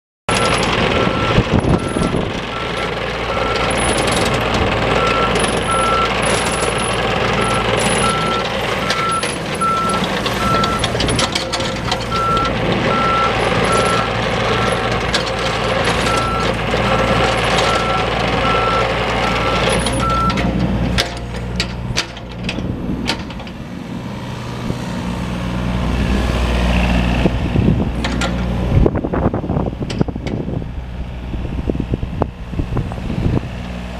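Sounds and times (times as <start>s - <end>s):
excavator diesel engine running: 0.3s - 33.9s
travel alarm beeping: 0.4s - 3.8s, 7.4s - 10.9s, 12.1s - 14.8s, 17.7s - 20.4s.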